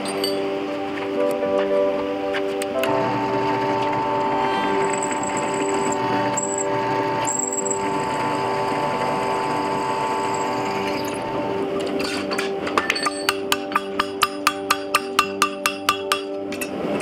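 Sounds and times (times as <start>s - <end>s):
faint high whine: 0.0s - 12.3s
drill press motor hum: 2.8s - 11.6s.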